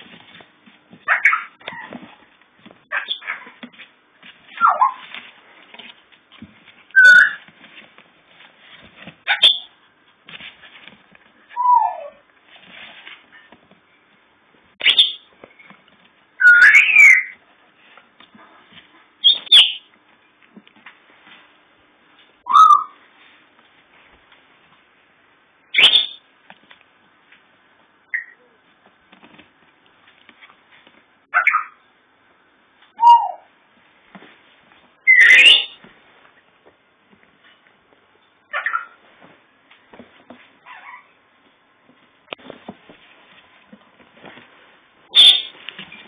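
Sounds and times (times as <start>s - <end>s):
puppy whining: 1.0s - 2.2s, 7.0s - 7.4s, 11.5s - 12.3s, 40.6s - 41.2s
puppy yelps: 1.0s - 2.2s, 2.8s - 3.6s, 4.5s - 5.1s, 7.0s - 7.5s, 9.3s - 9.7s, 11.5s - 12.2s, 16.4s - 17.4s, 22.4s - 23.0s, 31.3s - 31.8s, 32.9s - 33.5s, 35.1s - 35.8s, 38.5s - 39.0s, 40.6s - 41.2s.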